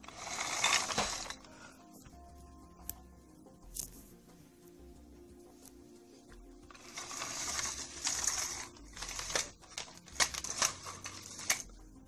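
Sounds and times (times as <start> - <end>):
plastic toys rustling: 0.0 - 1.5, 6.7 - 11.8.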